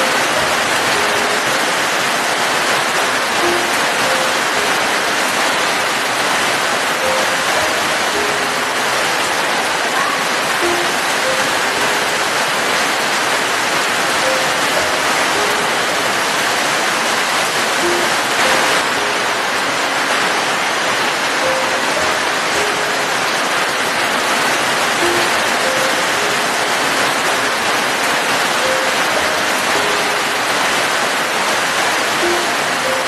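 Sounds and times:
soft background music: 0.0s - 9.9s, 10.5s - 33.0s
steady rainfall: 0.0s - 33.0s.

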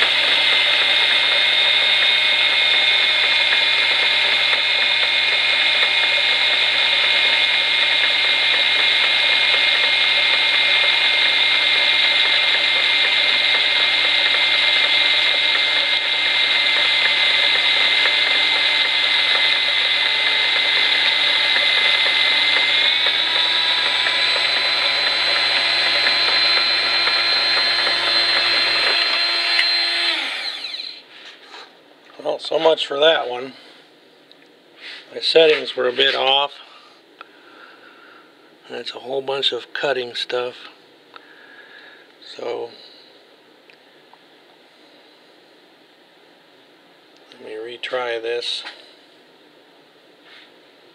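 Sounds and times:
die grinder high-pitched whine: 0.0s - 31.1s
low machine hum: 0.0s - 34.5s.

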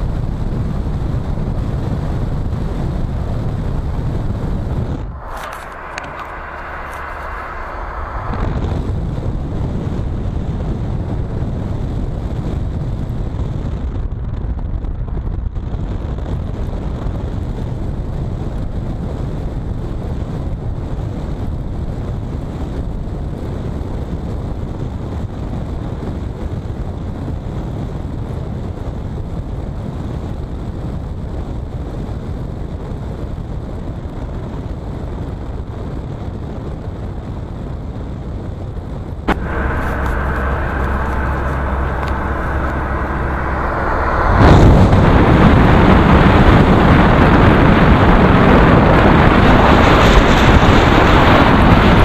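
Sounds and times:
car cabin road rumble: 2.6s - 12.3s, 39.2s - 52.0s
tyres on wet road: 5.2s - 9.1s, 39.3s - 48.5s.

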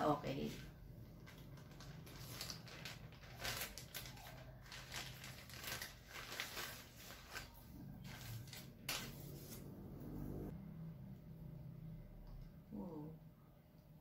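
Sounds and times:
plastic bag crinkling: 1.1s - 9.4s.

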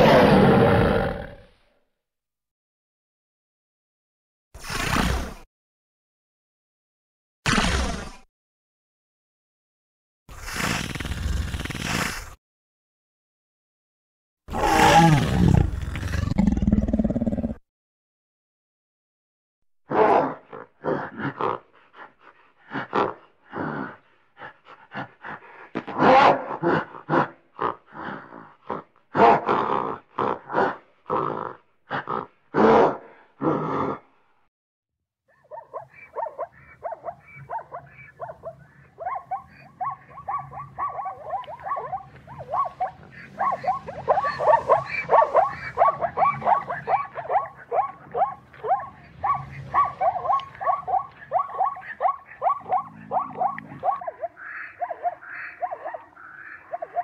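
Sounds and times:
loud grunts: 25.0s - 31.3s
zebras barking: 35.5s - 57.0s.

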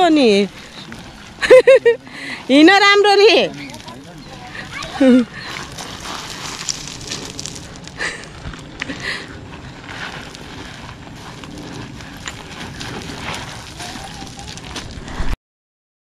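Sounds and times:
footsteps crunching on gravel: 0.0s - 15.4s.

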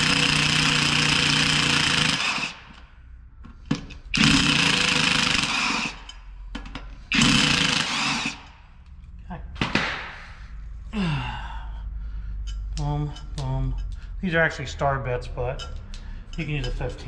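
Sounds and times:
cordless impact driver running: 0.0s - 2.8s, 4.1s - 6.0s, 7.1s - 8.6s.

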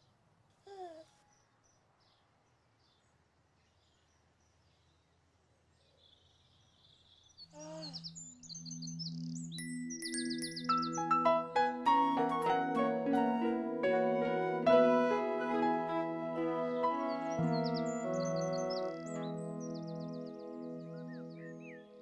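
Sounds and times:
faint birdsong: 0.0s - 22.0s
baby giggling: 0.7s - 1.0s, 7.6s - 8.0s
gentle music: 7.5s - 22.0s.

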